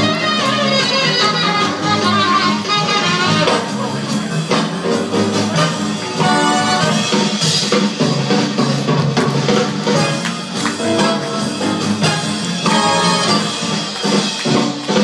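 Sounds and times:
fast swing jazz: 0.0s - 15.0s.

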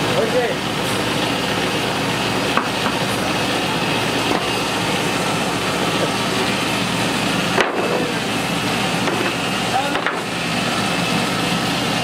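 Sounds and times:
woodworking machine motor hum: 0.0s - 12.0s.

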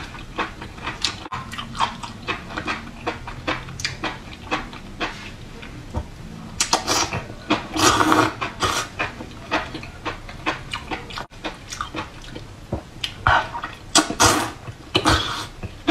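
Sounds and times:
slurping: 6.6s - 9.6s, 14.0s - 15.6s.

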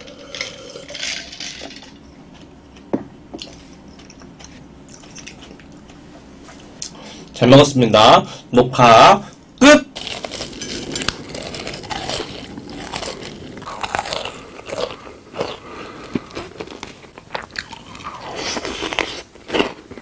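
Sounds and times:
person chewing crunchy food: 10.0s - 20.0s.

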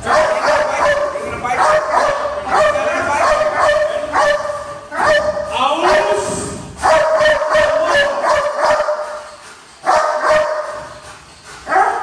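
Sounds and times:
dog yelping barks: 0.1s - 6.2s, 6.8s - 9.2s, 9.8s - 10.8s.

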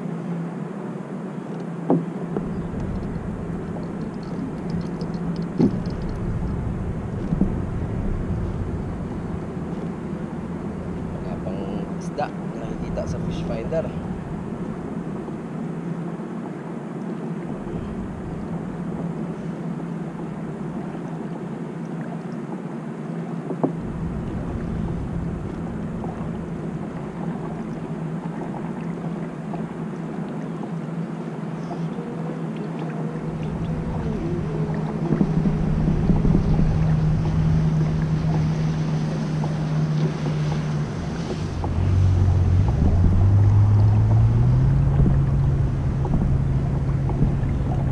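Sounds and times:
boat engine droning: 0.0s - 47.9s
water on open water: 0.0s - 47.9s
wind: 0.0s - 47.9s
lower engine note rising in pitch: 5.8s - 12.1s, 23.8s - 27.8s, 33.0s - 47.9s.

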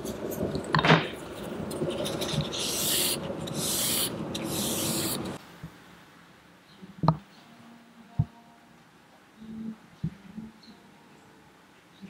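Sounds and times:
tissue wiping metal knife: 1.8s - 5.4s.

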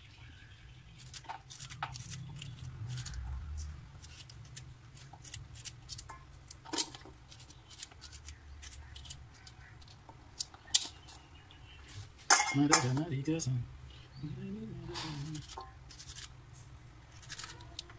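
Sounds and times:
knife cutting okra pods: 1.0s - 11.3s, 14.8s - 16.4s, 17.1s - 17.9s.

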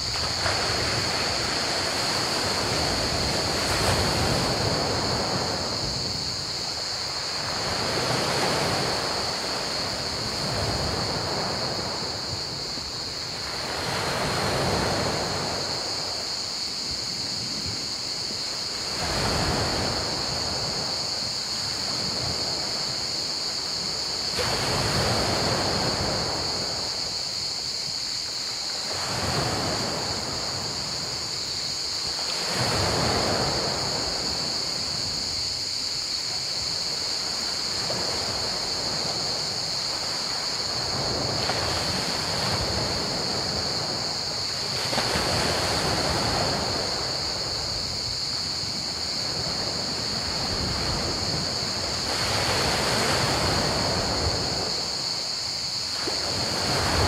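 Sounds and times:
crickets chirping: 0.0s - 57.0s.

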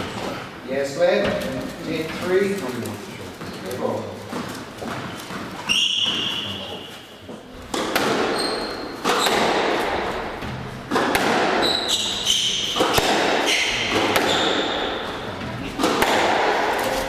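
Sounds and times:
shoes squeaking on wooden floor: 3.3s - 9.6s, 11.5s - 15.8s
squash ball hits ringing: 5.0s - 6.9s, 7.7s - 16.9s.

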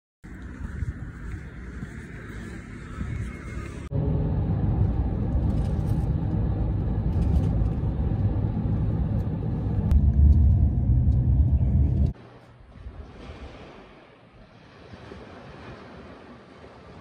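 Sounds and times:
road and engine rumble in van: 0.2s - 12.5s
deep heavy low rumble: 0.3s - 12.2s.

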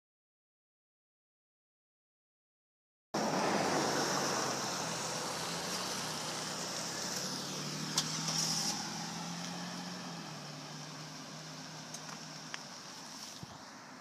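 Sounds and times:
vehicle engine and tyre hum: 3.2s - 14.0s.

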